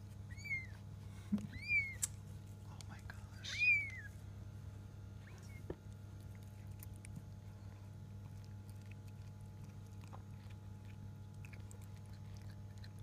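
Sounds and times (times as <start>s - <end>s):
steady low hum: 0.0s - 13.0s
kitten squeak: 0.3s - 0.8s, 1.5s - 2.1s, 3.4s - 4.1s, 5.2s - 5.7s.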